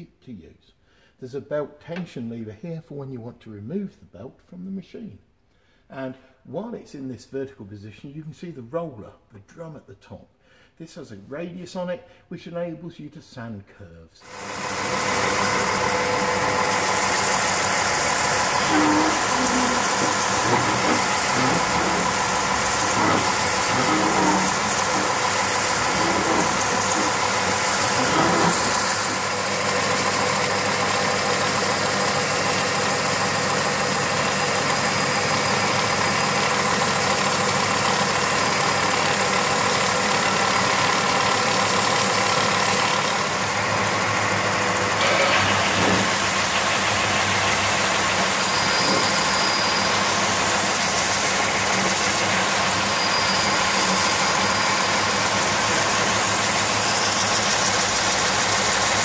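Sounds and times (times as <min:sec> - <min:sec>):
sander motor humming: 0:14.3 - 0:33.0, 0:39.7 - 0:59.0
hiss of wood being sanded: 0:16.6 - 0:29.5, 0:45.4 - 0:59.0.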